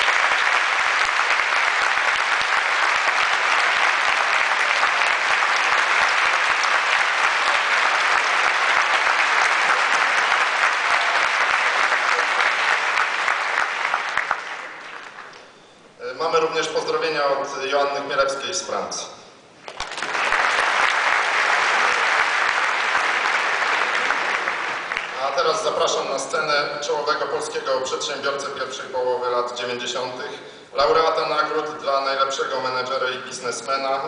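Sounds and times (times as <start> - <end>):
audience applauding: 0.0 - 15.5, 19.6 - 25.9.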